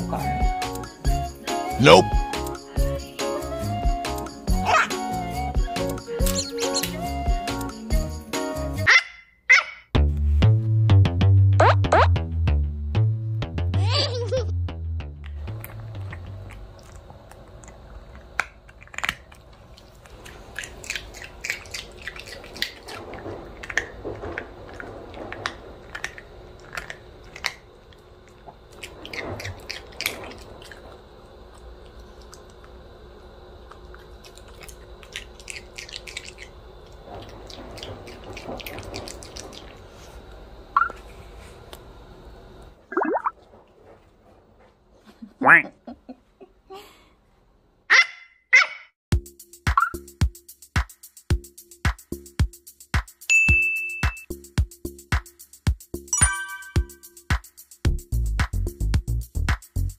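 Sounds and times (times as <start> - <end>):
high squeak: 6.2 - 7.0.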